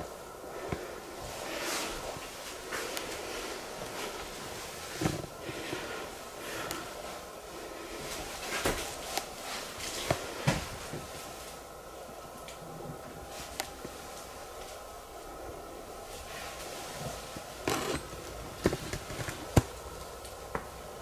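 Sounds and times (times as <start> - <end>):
faint hum: 0.0 - 21.0.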